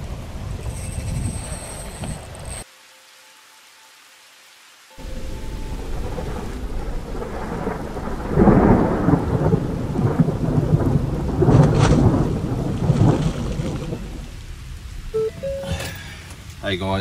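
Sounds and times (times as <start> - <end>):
steady rain: 0.0 - 17.0
thunder rumbling: 5.0 - 15.3.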